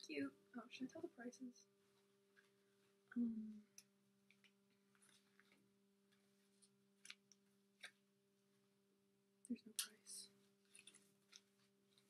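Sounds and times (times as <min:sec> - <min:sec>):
faint steady hum: 0:00.0 - 0:12.0
clothing rustling: 0:01.8 - 0:03.1, 0:04.2 - 0:08.8, 0:10.3 - 0:12.0.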